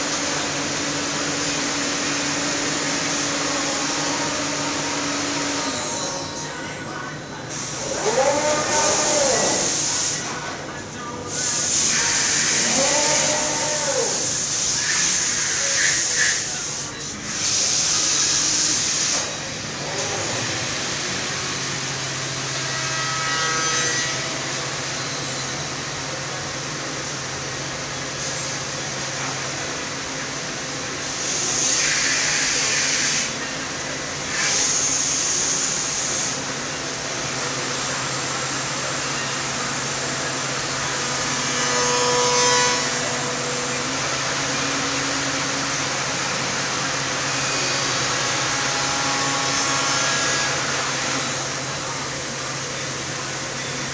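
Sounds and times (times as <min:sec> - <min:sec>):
woodworking machine hum: 0:00.0 - 0:53.9
loud hiss of cutter milling wood: 0:07.5 - 0:10.4, 0:11.3 - 0:22.6, 0:30.9 - 0:33.4, 0:34.3 - 0:42.5
machine high hiss: 0:07.5 - 0:10.4.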